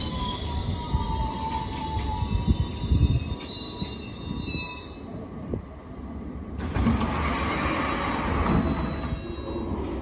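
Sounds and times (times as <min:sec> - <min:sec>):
high-pitched train squealing: 0:00.0 - 0:05.2, 0:07.5 - 0:10.0
low train rumble: 0:00.0 - 0:10.0.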